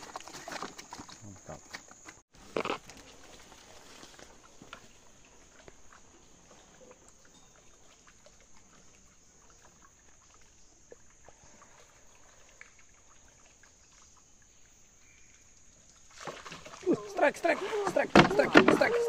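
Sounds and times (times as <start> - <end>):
water trickling: 2.9 - 19.0
canoe ticks and knocks: 17.2 - 19.0.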